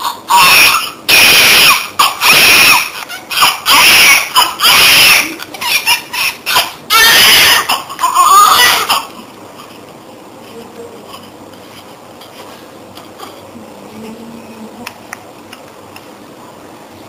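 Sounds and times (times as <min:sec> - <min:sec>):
baby crying: 0:00.0 - 0:09.2.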